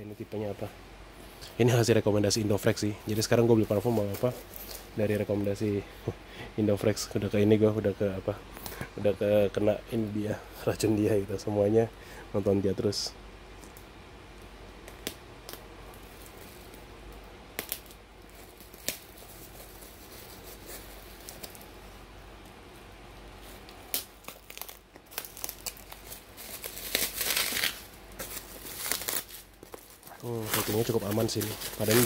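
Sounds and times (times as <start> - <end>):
plastic wrapping crinkling: 2.5 - 5.8, 14.8 - 22.6, 23.2 - 32.0
tape and cardboard tearing: 23.6 - 32.0.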